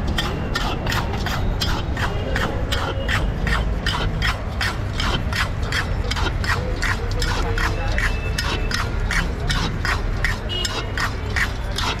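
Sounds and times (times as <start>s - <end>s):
metal spatula scraping iron pan: 0.0s - 12.0s.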